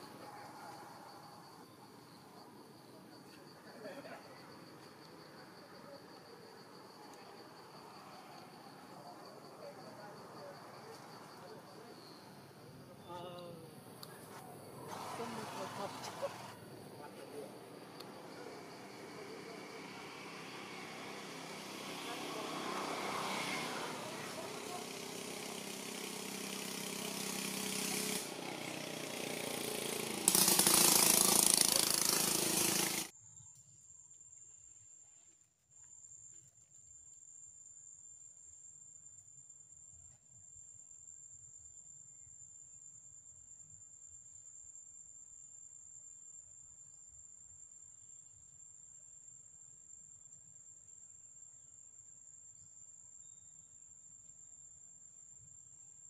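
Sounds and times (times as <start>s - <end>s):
high-pitched insect drone: 0.0s - 33.7s
loud engine hum with hiss: 13.6s - 33.1s.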